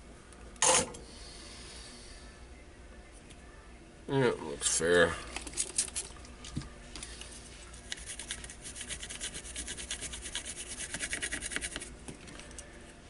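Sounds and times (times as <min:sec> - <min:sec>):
scratchy rubbing of circuit board: 0:07.8 - 0:11.9.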